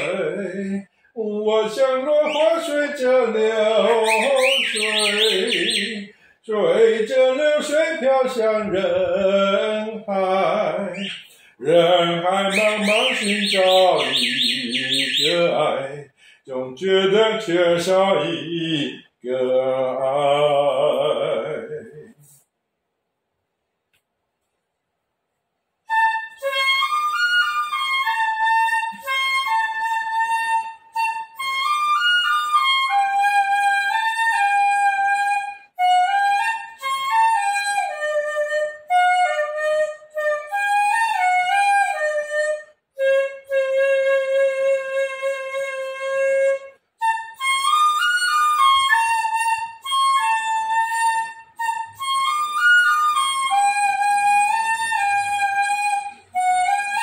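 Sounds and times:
bamboo flute melody: 0:00.0 - 0:00.8, 0:01.6 - 0:06.2, 0:07.3 - 0:15.9, 0:25.8 - 0:57.0.

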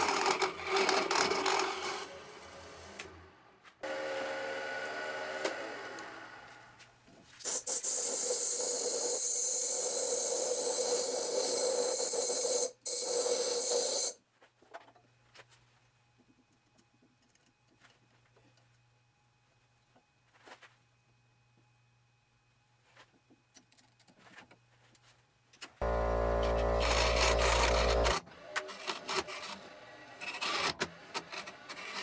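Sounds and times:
lathe humming: 0:25.8 - 0:28.2.

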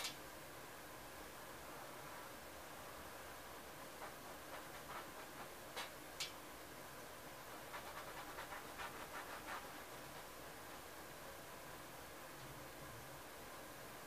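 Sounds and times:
steady hiss: 0:00.0 - 0:14.0
paintbrush strokes on canvas: 0:07.4 - 0:10.9.

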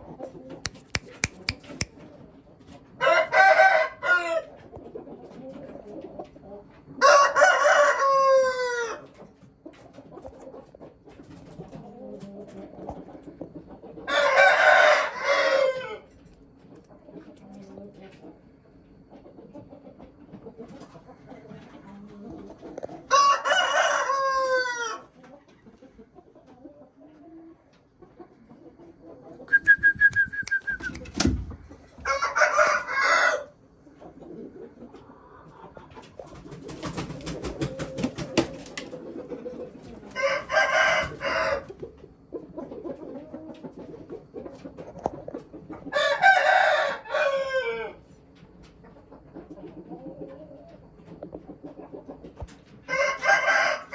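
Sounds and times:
rooster crowing: 0:03.0 - 0:04.5, 0:07.0 - 0:09.0, 0:14.1 - 0:16.1, 0:23.1 - 0:25.1, 0:32.0 - 0:33.6, 0:40.2 - 0:41.8, 0:45.9 - 0:48.0, 0:52.9 - 0:53.9.

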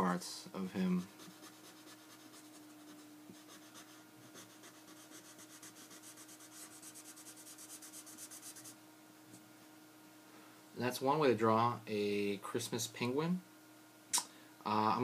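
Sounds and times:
marker scratching on paper: 0:01.0 - 0:08.8.

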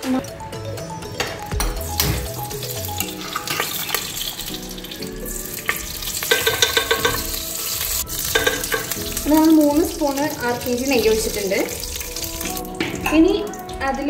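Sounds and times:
background music: 0:00.0 - 0:14.0
ghee sizzling in a hot pot: 0:01.8 - 0:14.0
steel spoon clicking on pot: 0:06.3 - 0:07.4, 0:08.3 - 0:09.0.

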